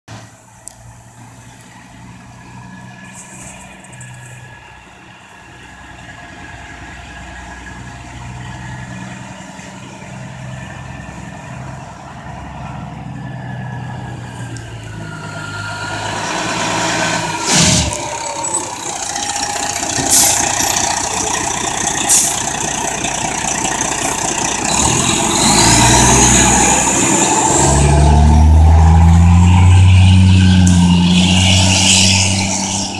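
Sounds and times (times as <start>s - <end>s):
fire engine diesel engine: 0.1s - 32.9s
rising whine: 12.8s - 22.7s.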